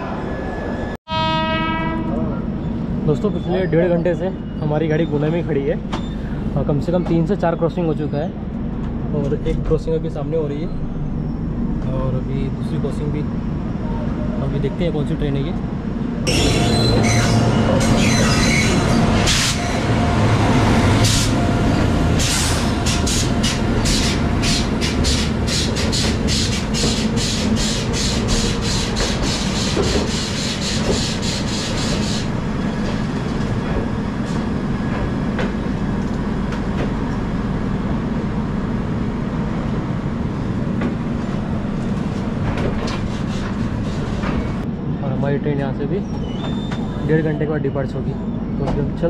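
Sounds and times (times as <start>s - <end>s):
passing train rumble: 0.0s - 49.0s.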